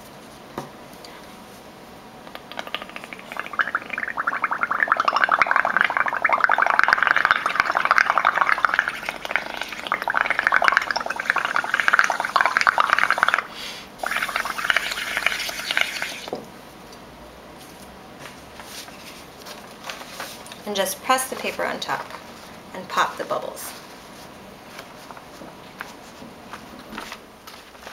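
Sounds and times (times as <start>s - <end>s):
bubbling gurgle through a straw: 2.4s - 16.3s.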